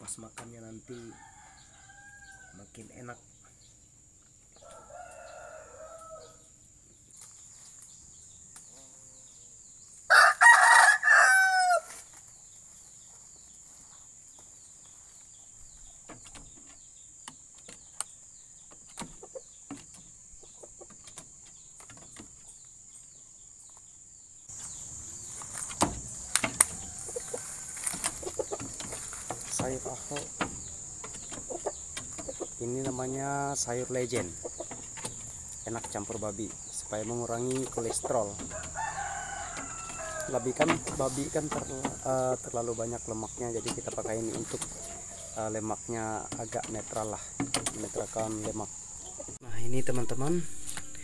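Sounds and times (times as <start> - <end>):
rooster crowing: 0.9 - 2.6, 4.6 - 6.5, 10.1 - 12.0, 26.0 - 30.9, 38.3 - 42.4, 44.7 - 45.4
knocks and rustling: 15.1 - 22.6, 24.5 - 51.0.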